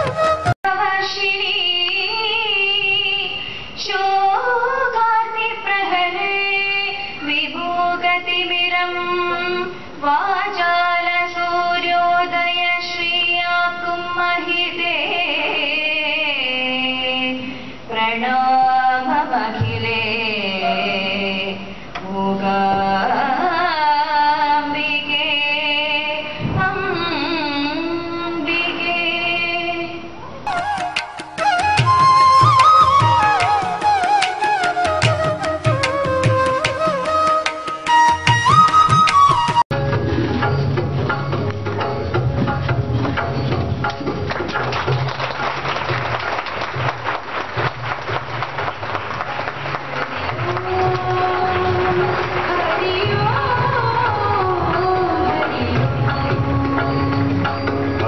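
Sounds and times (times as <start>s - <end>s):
woman singing into microphone: 0.7s - 37.4s, 50.4s - 57.6s.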